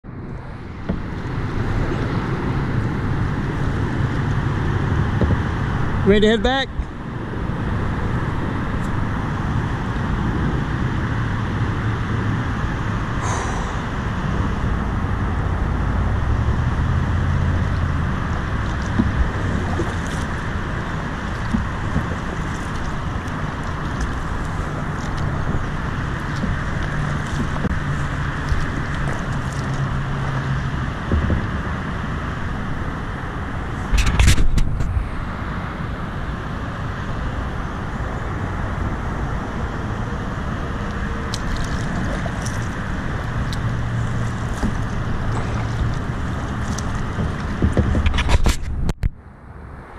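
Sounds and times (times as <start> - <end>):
road traffic on bridge: 0.0 - 49.9
paddle splashes and knocks: 0.7 - 6.0, 16.1 - 35.5, 40.4 - 49.0
loud rumble: 6.7 - 36.3
low hum: 6.7 - 49.9.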